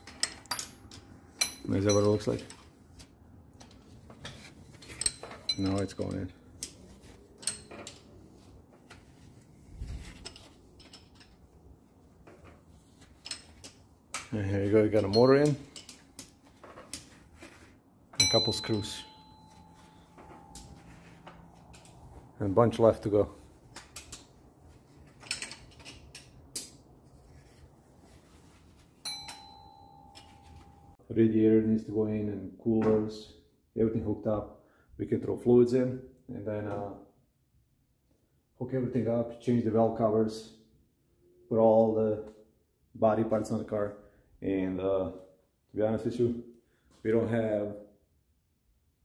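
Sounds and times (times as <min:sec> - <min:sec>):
metal hand tools clinking: 0:00.0 - 0:02.6, 0:04.8 - 0:06.8, 0:18.2 - 0:20.9, 0:29.0 - 0:30.9
ringing metallic clink: 0:00.1 - 0:02.3, 0:18.2 - 0:20.8, 0:29.0 - 0:30.9.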